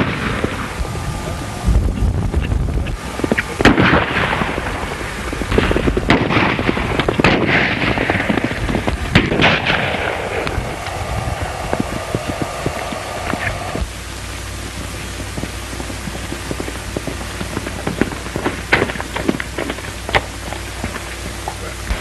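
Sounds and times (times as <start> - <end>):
gunshots: 0.0 - 0.8, 3.2 - 13.9
old film soundtrack crackle: 0.0 - 22.0.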